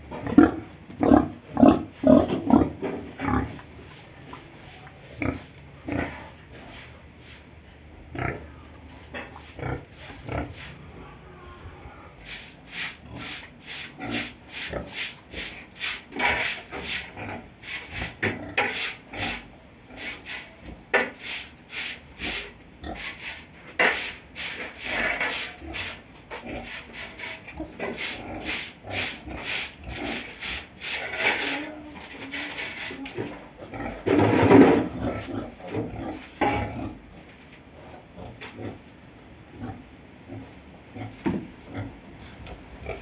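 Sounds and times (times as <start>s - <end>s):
broom sweeping concrete: 3.4s - 5.5s, 6.2s - 7.6s, 9.3s - 10.9s, 12.2s - 33.4s.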